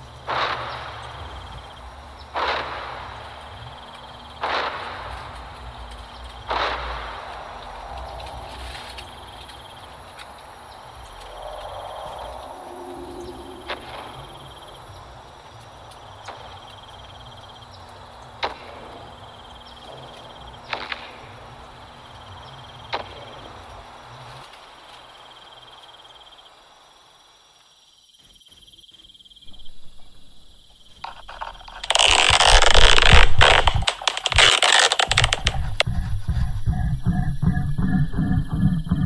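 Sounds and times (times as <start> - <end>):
low rumble: 0.0 - 16.0, 35.1 - 39.0
crackling clicks: 0.0 - 25.8, 29.5 - 36.0
crickets chirping: 0.0 - 39.0
sharp clicks: 30.9 - 36.0.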